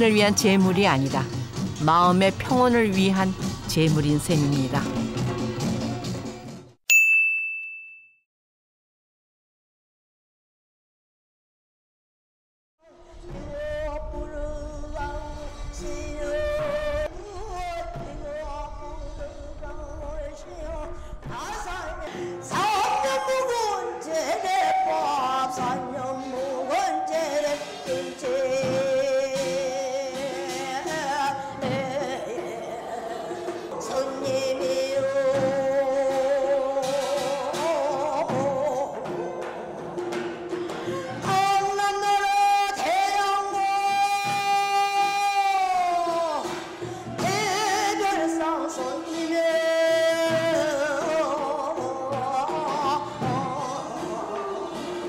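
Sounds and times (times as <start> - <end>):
woman singing with vibrato: 13.2 - 40.2, 40.8 - 55.0.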